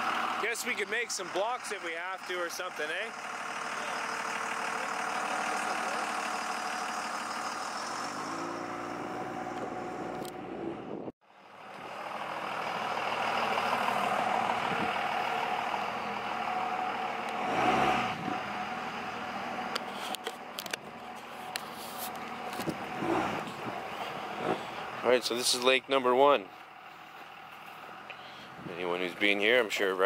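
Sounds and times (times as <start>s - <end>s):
road noise: 0.0s - 30.0s
truck engine running: 0.0s - 30.0s.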